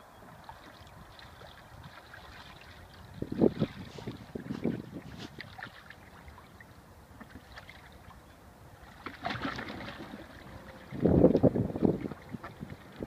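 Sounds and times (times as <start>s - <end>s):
water sloshing and dripping: 0.3s - 13.0s
duck flapping wings in water: 9.0s - 13.0s.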